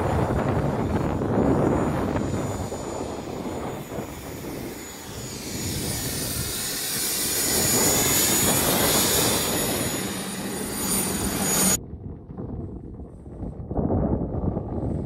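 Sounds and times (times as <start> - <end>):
helicopter engine and rotor: 0.0 - 11.8
high turbine whine: 0.0 - 12.1.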